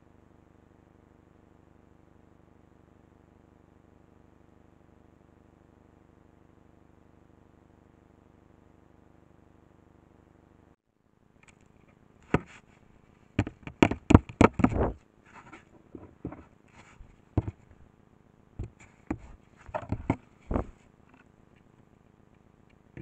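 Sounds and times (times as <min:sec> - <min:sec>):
sharp clicks and scrapes: 0:13.4 - 0:17.8, 0:18.6 - 0:21.7.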